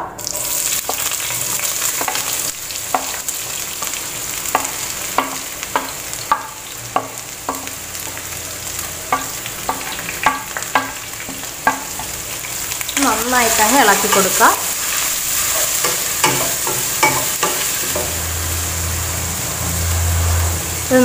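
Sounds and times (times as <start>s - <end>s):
onions sizzling in oil: 0.2s - 21.0s
wooden spatula tapping pan: 1.9s - 3.2s, 4.5s - 7.8s, 9.1s - 12.2s, 15.4s - 18.2s.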